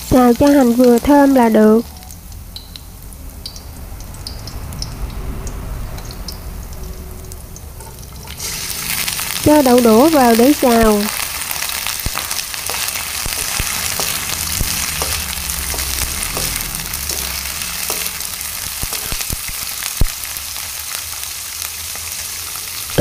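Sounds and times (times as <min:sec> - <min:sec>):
beans sizzling in hot oil: 0:00.0 - 0:23.0
wooden spatula knocking on pan: 0:13.3 - 0:18.2.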